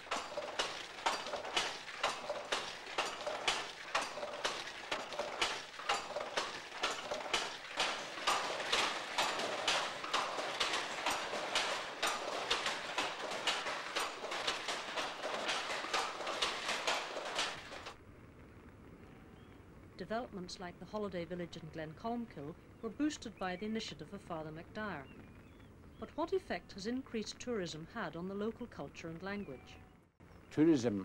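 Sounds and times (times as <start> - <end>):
hand loom clacking: 0.0 - 18.0.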